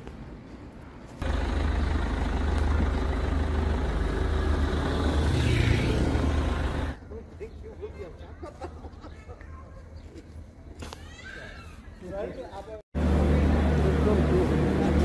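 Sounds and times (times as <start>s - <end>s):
heavy vehicle engine rumble: 1.2s - 7.0s.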